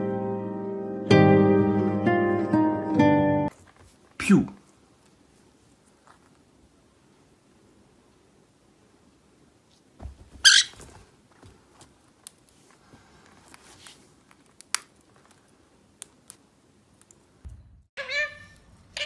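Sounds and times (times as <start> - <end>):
parrot squeaking: 10.4 - 10.8, 18.0 - 19.0.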